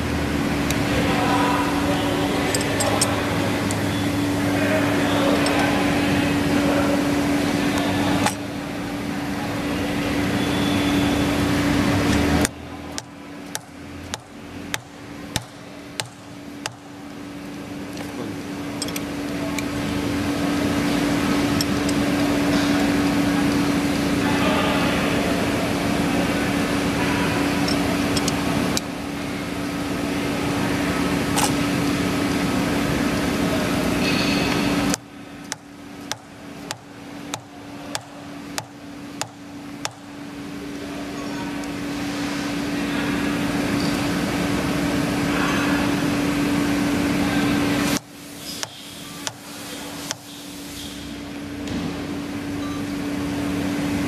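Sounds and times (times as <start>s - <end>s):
machine hum: 0.0s - 54.0s.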